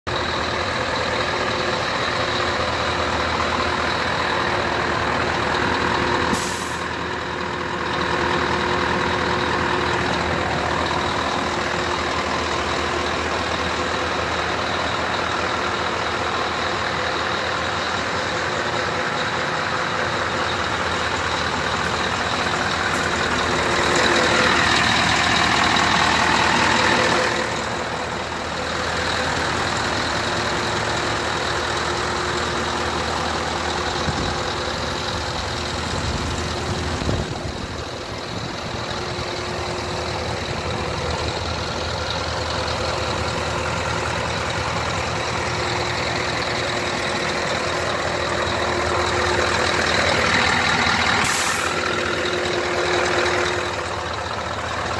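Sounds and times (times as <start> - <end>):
diesel engine idling: 0.0 - 54.9
air hiss burst: 6.3 - 6.8, 51.2 - 51.8.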